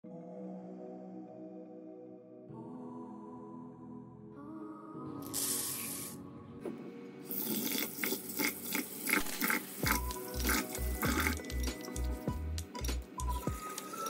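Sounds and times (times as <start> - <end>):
background music with bass beat: 9.8 - 13.7.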